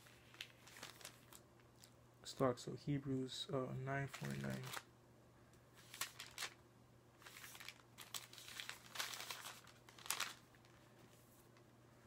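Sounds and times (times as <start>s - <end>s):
thin paper pages rustling: 0.0s - 2.0s, 4.1s - 4.8s, 5.8s - 6.6s, 7.2s - 11.6s.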